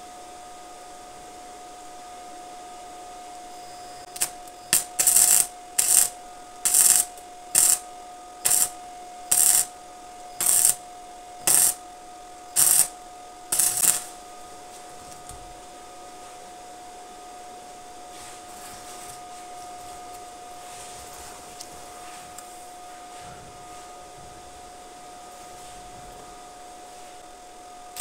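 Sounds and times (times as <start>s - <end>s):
faint steady whine: 0.0s - 28.0s
arc welding crackling: 4.0s - 7.8s, 8.4s - 9.8s, 10.4s - 10.8s, 11.4s - 11.8s, 12.5s - 14.2s.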